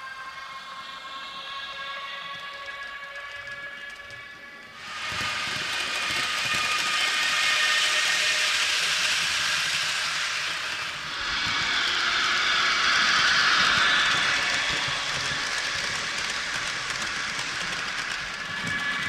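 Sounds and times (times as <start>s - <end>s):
model train wheels rumbling: 2.6s - 19.0s.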